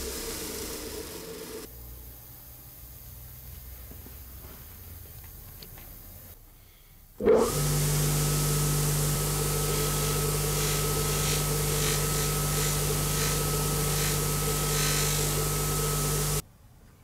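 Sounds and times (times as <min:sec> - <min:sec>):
polishing machine humming: 0:00.0 - 0:01.7, 0:07.3 - 0:16.4.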